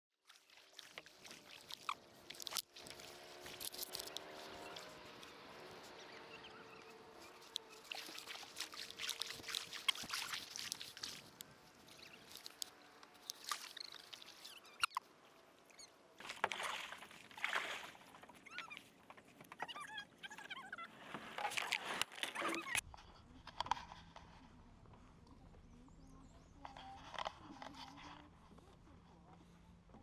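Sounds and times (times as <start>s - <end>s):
paddle splashing in water: 0.3s - 14.9s, 16.2s - 18.9s.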